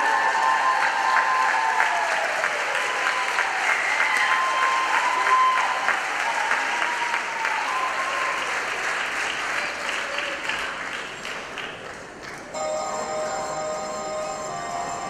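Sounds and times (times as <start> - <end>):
voices cheering: 0.0 - 8.9
audience applauding: 0.0 - 12.7.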